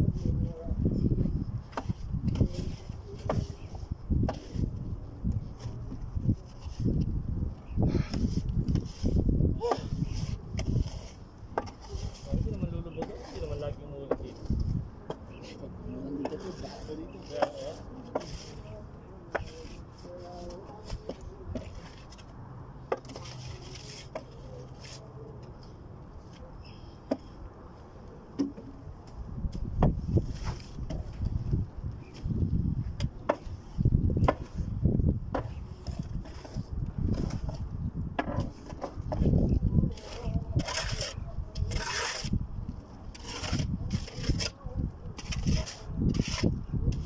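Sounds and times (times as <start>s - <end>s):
metal tool scraping sand and rubble: 8.1s - 14.6s, 15.4s - 22.3s, 38.4s - 42.4s, 43.0s - 47.0s.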